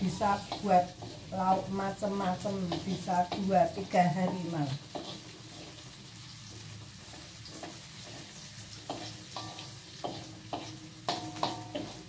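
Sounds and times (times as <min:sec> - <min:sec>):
metal spatula scraping a wok: 0:00.0 - 0:12.0
shallots and garlic sizzling in oil: 0:00.0 - 0:12.0.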